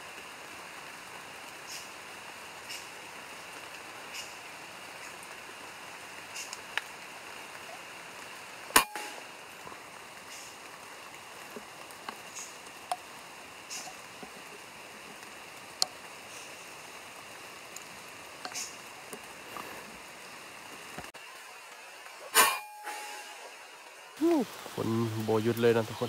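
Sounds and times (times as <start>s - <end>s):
drips ticking on leaves: 0.0s - 22.2s, 24.2s - 26.0s
rain hissing: 0.0s - 26.0s.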